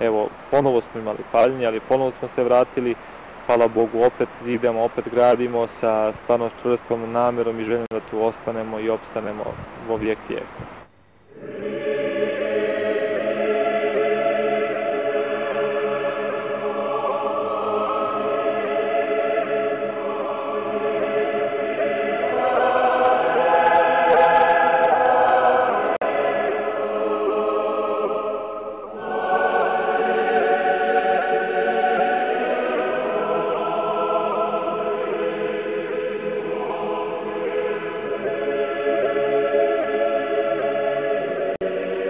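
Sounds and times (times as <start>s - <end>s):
choir chanting: 11.3s - 42.0s.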